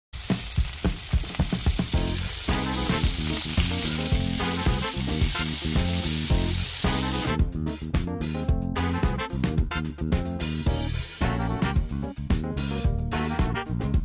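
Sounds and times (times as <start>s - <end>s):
steaks sizzling in a frying pan: 0.2s - 7.3s
background music: 0.6s - 14.0s.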